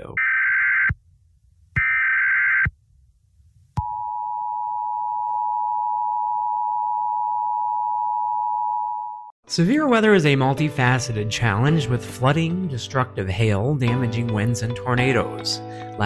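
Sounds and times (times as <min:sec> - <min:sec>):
long steady attention tone: 0:03.8 - 0:09.3.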